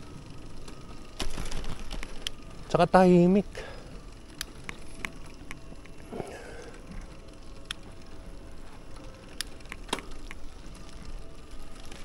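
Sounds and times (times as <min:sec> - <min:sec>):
faint steady hum: 0:00.0 - 0:12.0
sharp clicks and ticks: 0:04.3 - 0:06.0, 0:07.6 - 0:07.9, 0:09.3 - 0:11.0.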